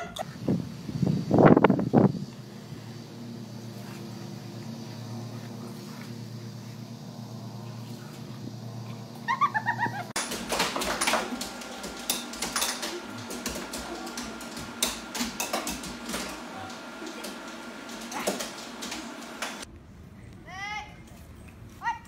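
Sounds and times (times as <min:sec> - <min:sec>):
air hockey table clicks and knocks: 0:10.2 - 0:19.6.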